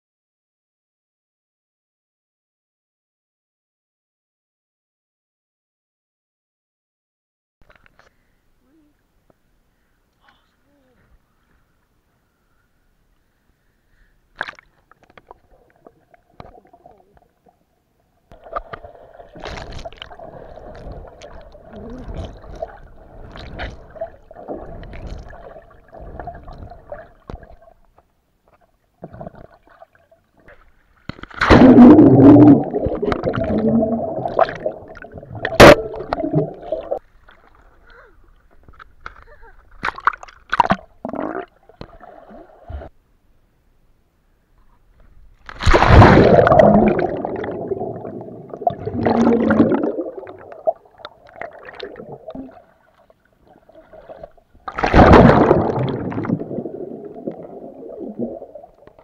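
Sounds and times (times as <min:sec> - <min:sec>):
water sloshing and gurgling: 0:14.4 - 0:43.0, 0:45.1 - 0:59.0.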